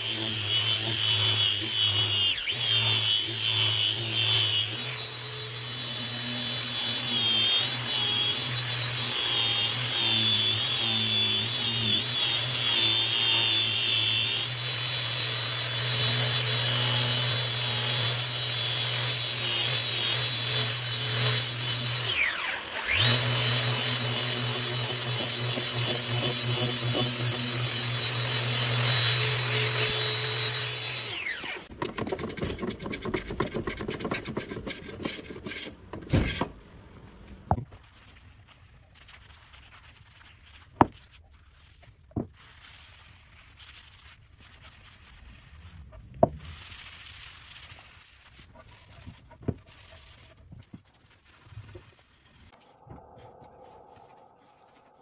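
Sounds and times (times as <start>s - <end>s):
orbital sander running: 0.0s - 34.0s
scratchy rubbing on wood: 22.9s - 31.0s, 31.8s - 36.5s, 37.6s - 55.0s.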